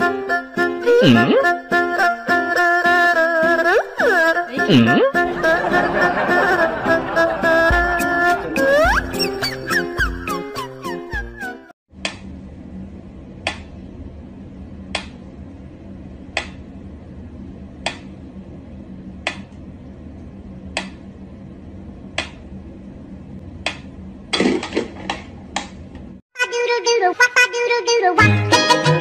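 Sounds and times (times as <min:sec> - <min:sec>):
steady low hum: 0:04.0 - 0:09.3, 0:11.9 - 0:26.2.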